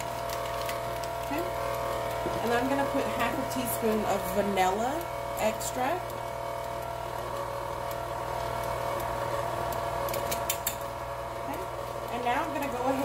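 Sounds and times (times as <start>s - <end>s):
stand mixer motor humming: 0.0s - 13.0s.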